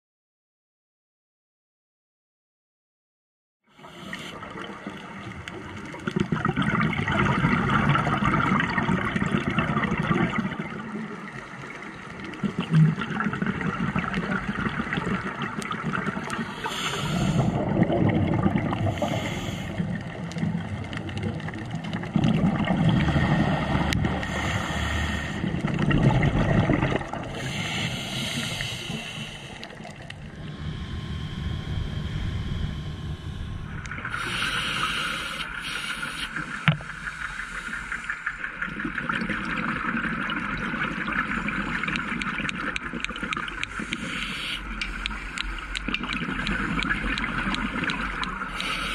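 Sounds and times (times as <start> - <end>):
diver's bubbles gurgling: 3.9 - 48.9
underwater hiss: 16.2 - 17.8, 18.8 - 20.0, 22.9 - 25.6, 27.3 - 30.0, 34.0 - 38.6, 43.7 - 45.8, 48.4 - 48.9.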